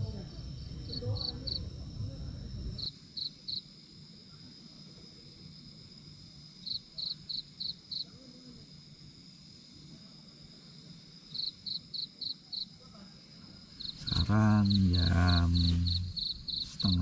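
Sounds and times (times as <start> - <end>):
cricket chirping: 0.0 - 17.0
high-pitched background whine: 13.9 - 17.0.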